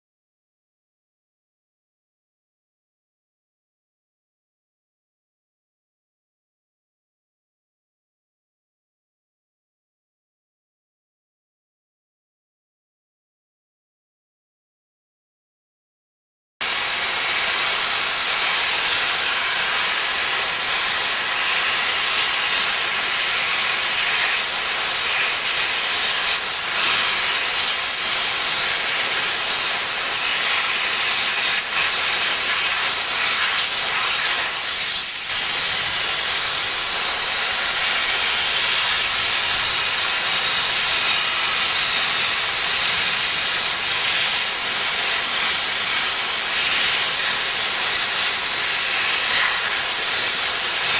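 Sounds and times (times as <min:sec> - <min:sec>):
steam jet hissing: 0:16.6 - 0:50.9.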